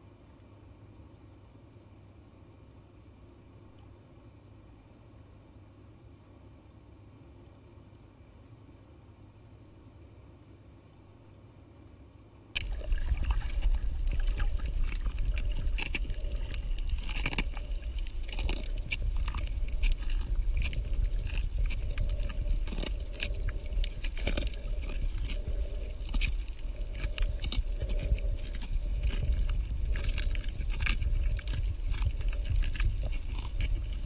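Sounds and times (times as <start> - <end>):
clicks and crackles: 12.6 - 34.0
underwater rumble: 12.6 - 34.0.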